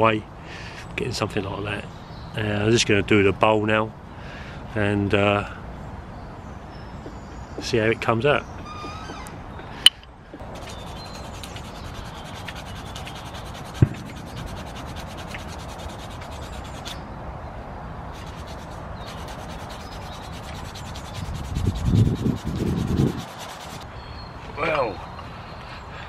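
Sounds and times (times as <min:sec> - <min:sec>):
knife scraping wood: 0:10.4 - 0:17.0, 0:18.1 - 0:23.8
low thumps: 0:13.8 - 0:14.3.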